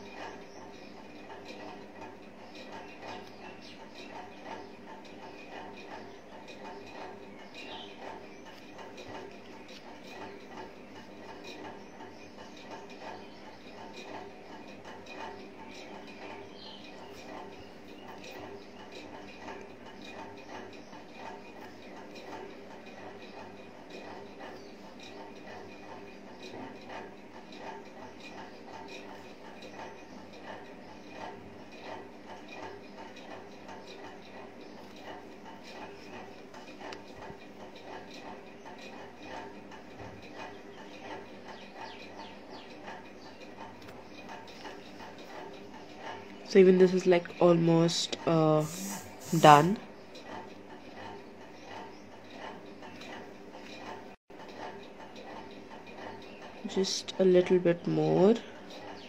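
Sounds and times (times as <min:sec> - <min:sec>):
steady low hum: 0:00.0 - 0:59.0
pen scratching paper: 0:48.6 - 0:49.5.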